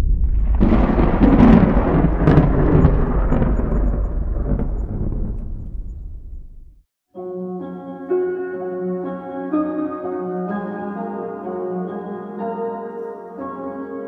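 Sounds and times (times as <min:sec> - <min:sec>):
thunder rolling: 0:00.0 - 0:06.8.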